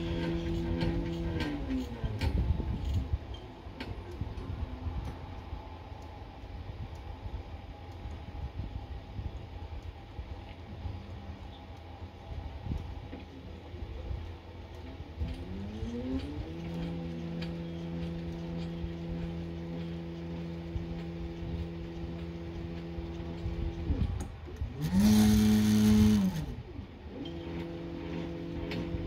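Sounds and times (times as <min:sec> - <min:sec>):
stepper motors whining: 0:00.0 - 0:29.0.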